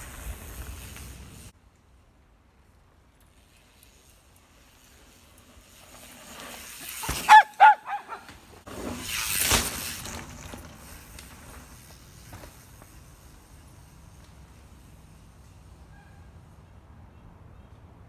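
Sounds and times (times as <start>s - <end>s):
bike tyres rushing on dirt: 0.0s - 16.7s
dog barking: 7.3s - 8.3s.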